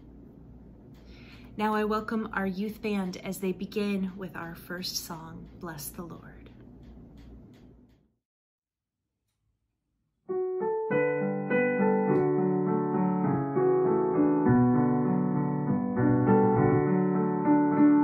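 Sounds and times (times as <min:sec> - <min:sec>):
digital piano chords: 0:10.3 - 0:18.0.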